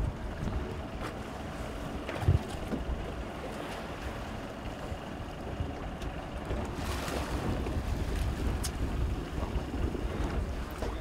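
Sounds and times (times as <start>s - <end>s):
wind buffeting microphone: 0.0s - 1.1s, 5.5s - 11.0s
waves washing against hull: 0.0s - 11.0s.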